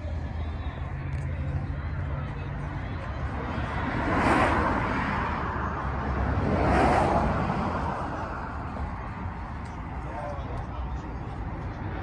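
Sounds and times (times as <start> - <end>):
vehicles driving past: 0.0 - 12.0.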